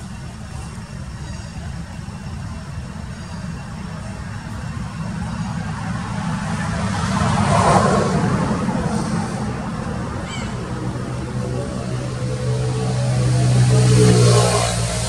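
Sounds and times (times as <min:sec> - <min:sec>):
steady low rumble: 0:00.0 - 0:15.0
vehicle passing: 0:04.6 - 0:15.0.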